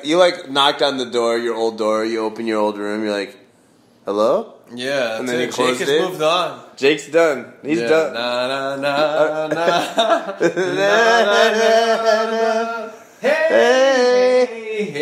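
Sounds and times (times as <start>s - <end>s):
man singing long held notes: 10.6s - 15.0s.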